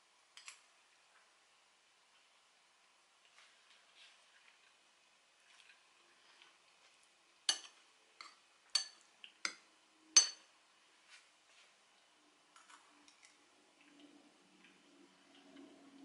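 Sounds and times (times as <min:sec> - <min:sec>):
cutlery clinking on ceramic bowl: 0:07.5 - 0:09.6, 0:10.2 - 0:10.5.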